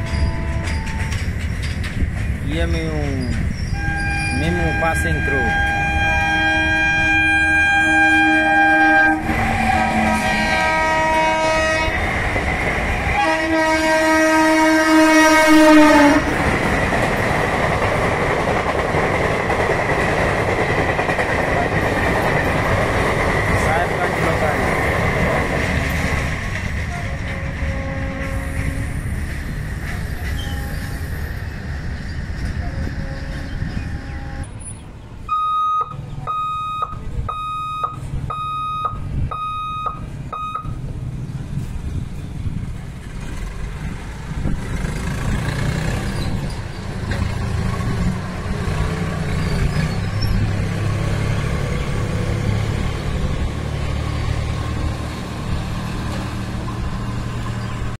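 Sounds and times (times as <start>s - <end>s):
freight train rumbling on rails: 0.0s - 58.0s
electronic warning beeper: 35.3s - 40.8s
motorcycle engines: 40.0s - 58.0s.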